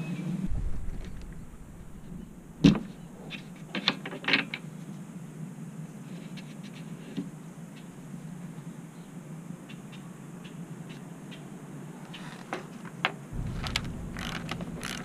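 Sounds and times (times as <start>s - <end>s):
plastic clicks: 13.4s - 15.0s
sharp knock: 13.4s - 15.0s.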